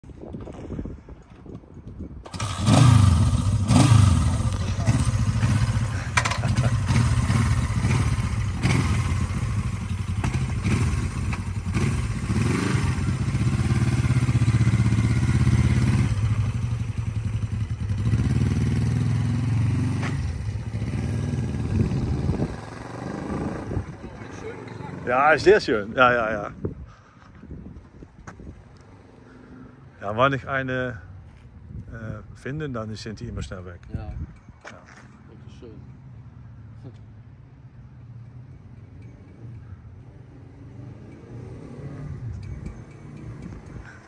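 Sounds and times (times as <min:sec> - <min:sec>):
motorcycle engine revving: 0:02.3 - 0:25.4, 0:39.0 - 0:44.0.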